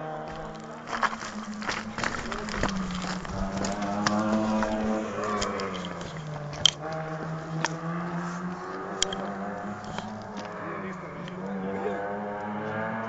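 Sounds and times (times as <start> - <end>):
distant vehicle engine drone: 0.0 - 13.0
sharp clicks: 9.0 - 10.2.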